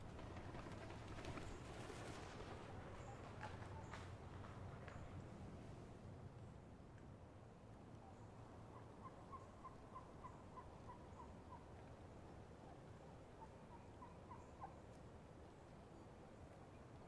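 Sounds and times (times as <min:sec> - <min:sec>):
wild turkey yelps: 0:08.0 - 0:11.8, 0:12.6 - 0:14.8.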